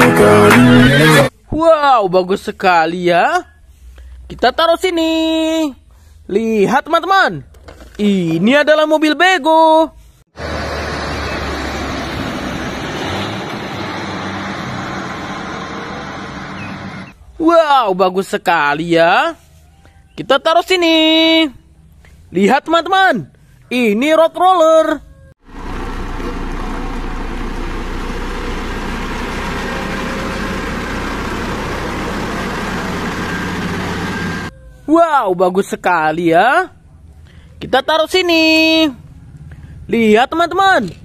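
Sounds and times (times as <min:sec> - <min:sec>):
truck engine hum: 0:00.0 - 0:01.3, 0:10.4 - 0:17.4, 0:25.1 - 0:34.9
tyre and road noise: 0:10.3 - 0:17.5, 0:25.0 - 0:34.9, 0:36.8 - 0:41.0.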